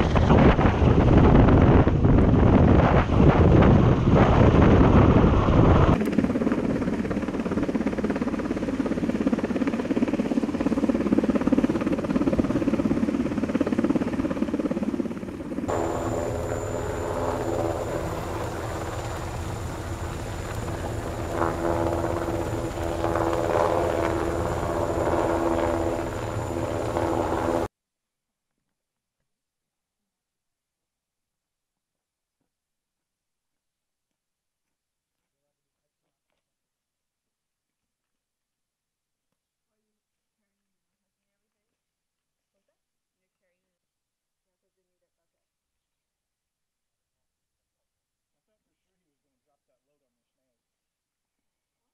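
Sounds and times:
helicopter rotor and turbine: 0.0s - 27.7s
wind buffeting microphone: 0.0s - 27.7s
high whine: 15.5s - 27.7s.

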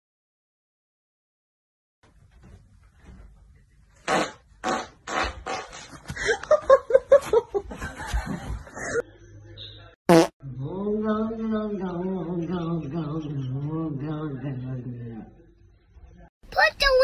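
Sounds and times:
person farting: 4.0s - 6.0s, 10.1s - 10.3s
laughter: 6.2s - 9.2s.

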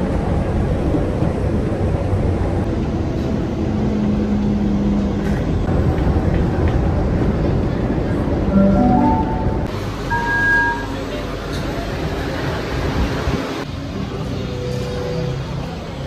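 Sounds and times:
train rumbling inside carriage: 0.0s - 16.0s
low hum: 8.5s - 10.4s.

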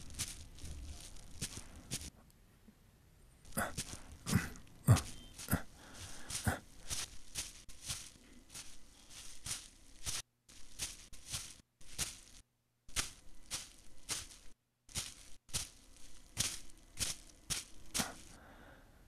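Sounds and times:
digging tool scraping damp earth: 0.0s - 2.1s, 3.5s - 18.4s.

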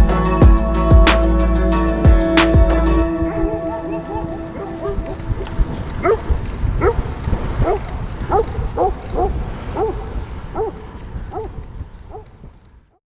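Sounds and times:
low wind: 0.0s - 13.0s
road rumble: 0.0s - 13.0s
dog barking: 3.2s - 12.3s.

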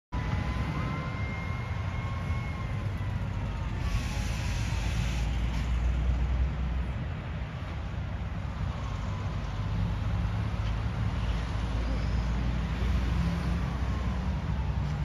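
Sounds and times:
highway traffic rumble: 0.1s - 15.0s
vehicle tyre hiss: 3.8s - 6.4s.

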